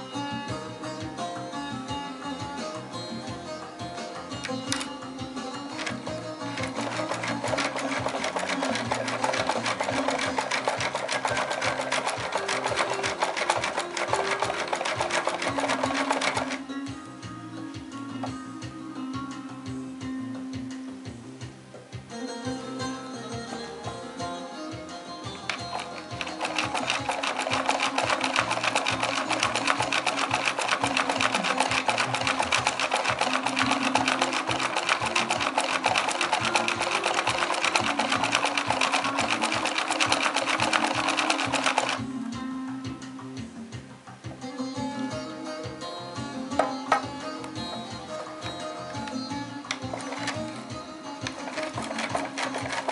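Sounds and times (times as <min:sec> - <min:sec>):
wooden mechanism clattering: 0:04.4 - 0:05.0, 0:05.6 - 0:16.6, 0:25.5 - 0:42.0, 0:46.5 - 0:52.9.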